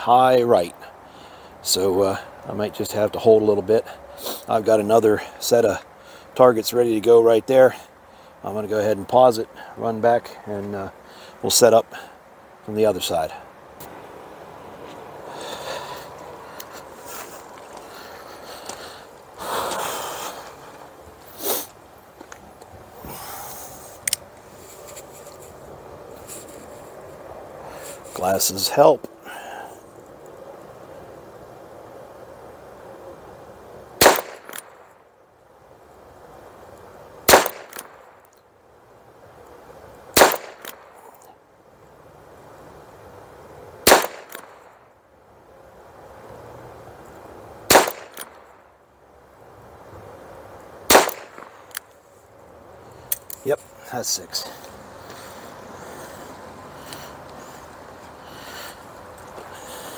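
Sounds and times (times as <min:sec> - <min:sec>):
man breathing: 0:00.9 - 0:01.6, 0:05.9 - 0:06.4, 0:11.0 - 0:12.3, 0:15.2 - 0:21.8, 0:23.0 - 0:24.0, 0:29.2 - 0:30.0, 0:54.4 - 0:59.9
sharp sniff: 0:04.0 - 0:04.5, 0:15.2 - 0:21.8, 0:23.0 - 0:24.0, 0:27.6 - 0:28.2, 0:54.5 - 0:59.9
fainter echo crack: 0:43.8 - 0:44.8, 0:47.7 - 0:48.6, 0:50.9 - 0:51.9.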